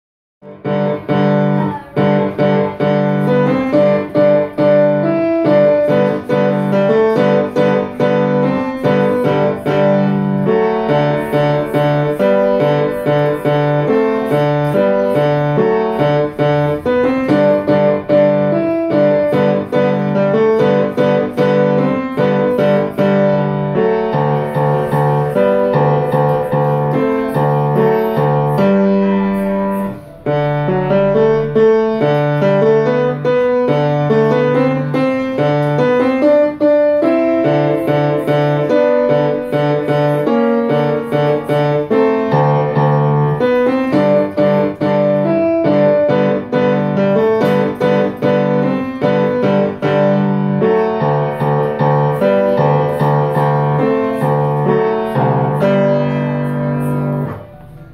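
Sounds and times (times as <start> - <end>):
solo grand piano: 0.4 - 57.9.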